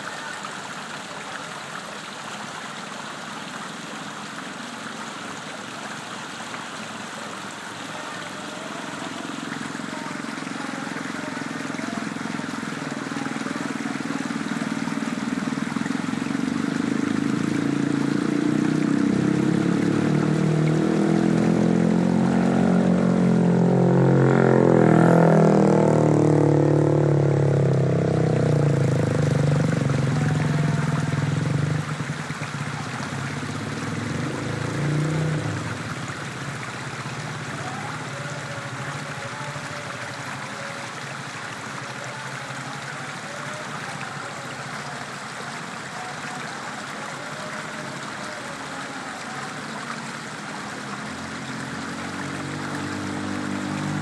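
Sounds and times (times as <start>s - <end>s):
river water rushing over rocks: 0.0s - 54.0s
engine passing: 8.2s - 39.7s, 50.3s - 54.0s.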